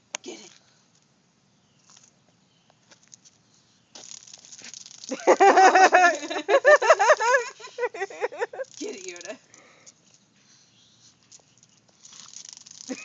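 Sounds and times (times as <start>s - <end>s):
cicada buzzing: 3.9s - 9.5s, 11.6s - 13.0s.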